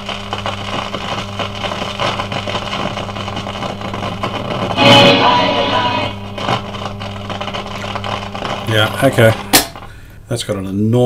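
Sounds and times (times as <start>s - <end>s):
crackling: 0.0s - 10.1s
radio speaker deep hum: 1.6s - 9.6s.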